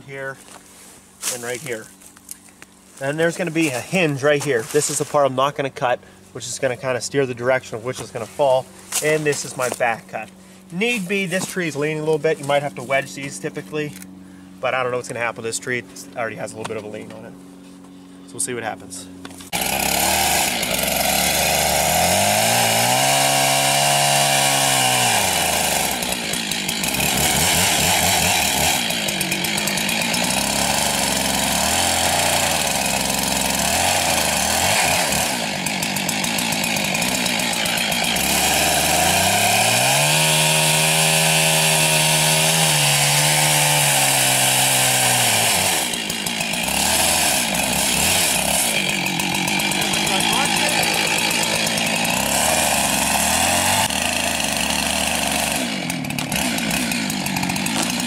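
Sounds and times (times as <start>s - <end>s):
chainsaw cutting wood: 3.1s - 5.2s, 7.9s - 14.2s, 19.2s - 58.0s.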